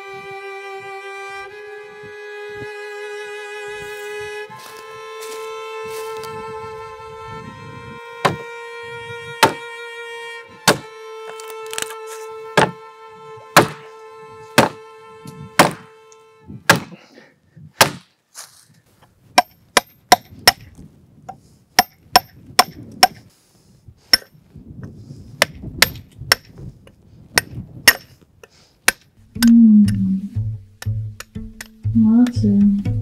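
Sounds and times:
held violin note: 0.0 - 16.6, 29.2 - 33.0
hammer striking chisel on stone: 13.6 - 13.8, 19.4 - 20.7, 21.8 - 23.2, 24.2 - 24.4.

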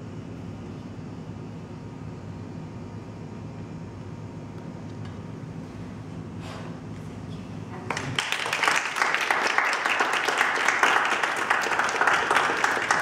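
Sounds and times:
crowd applauding: 7.8 - 13.0.

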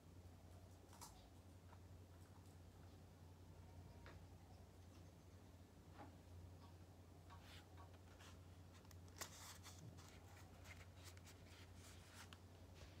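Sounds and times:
low steady hum: 0.0 - 13.0
book pages rustling: 7.3 - 13.0.

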